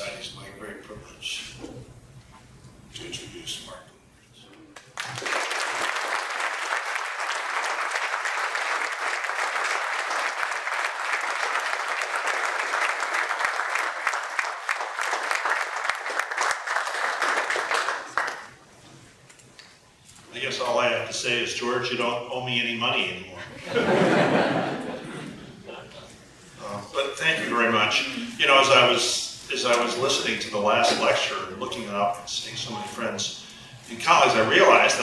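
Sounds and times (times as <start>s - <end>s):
audience applauding: 4.8s - 18.6s.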